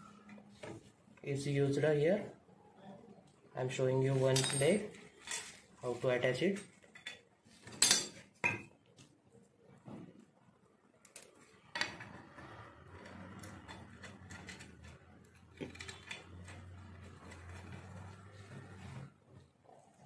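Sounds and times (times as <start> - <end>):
metal parts clicking and knocking: 13.0 - 17.7.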